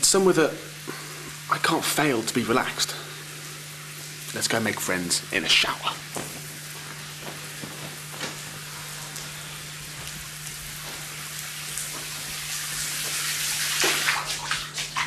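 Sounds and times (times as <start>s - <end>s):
steady low hum: 0.0s - 14.7s
shower water spraying: 0.0s - 15.0s.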